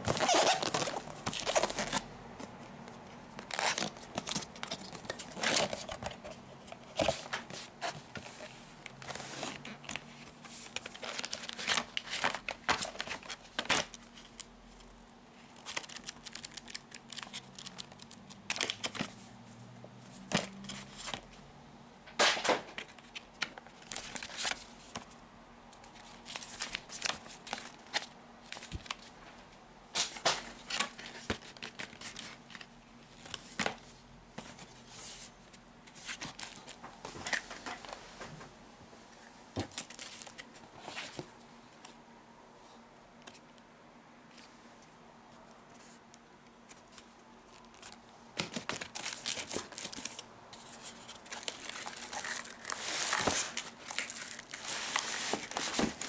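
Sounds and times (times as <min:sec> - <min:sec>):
cardboard and paper rustling: 0:00.0 - 0:14.8, 0:25.9 - 0:29.1, 0:30.0 - 0:38.4, 0:39.5 - 0:42.0, 0:46.7 - 0:56.0.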